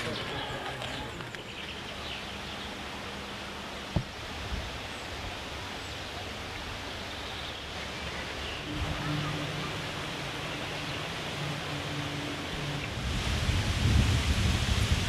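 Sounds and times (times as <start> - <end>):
rustling vegetation: 0.0 - 15.0
wind: 0.0 - 15.0.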